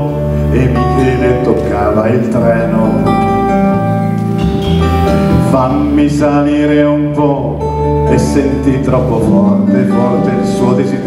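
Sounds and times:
person singing: 0.0 - 4.0, 4.6 - 11.0
bass guitar: 0.0 - 11.0
electric guitars: 0.0 - 11.0
drums: 4.0 - 6.4.

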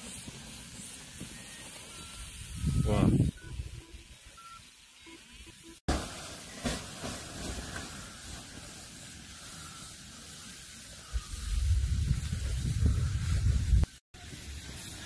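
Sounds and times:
wind buffeting microphone: 2.4 - 3.8, 11.1 - 13.9.

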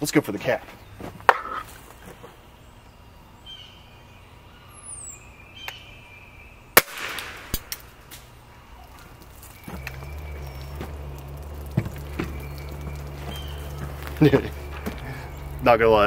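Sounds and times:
air rifle shot crack: 6.8 - 7.9
small knocks: 8.9 - 15.7.

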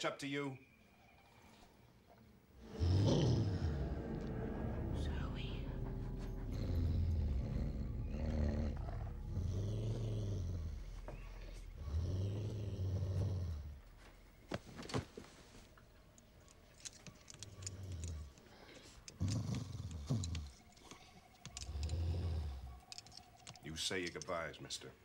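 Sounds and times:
dog growling low: 2.6 - 14.0, 19.1 - 20.7, 21.5 - 22.8.

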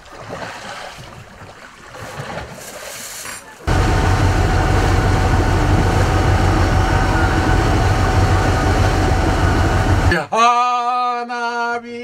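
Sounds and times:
boat engine rumbling: 3.6 - 10.1.

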